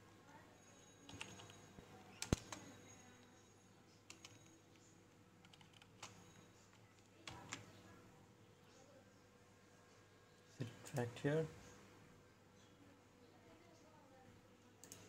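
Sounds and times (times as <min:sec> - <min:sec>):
computer keyboard keystrokes: 0:01.1 - 0:02.7, 0:04.1 - 0:04.8, 0:05.4 - 0:07.7.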